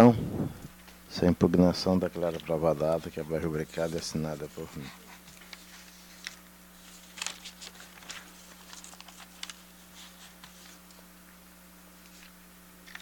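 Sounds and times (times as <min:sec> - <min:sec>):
steady low hum: 0:00.0 - 0:13.0
papers rustling: 0:02.0 - 0:11.1, 0:12.0 - 0:13.0.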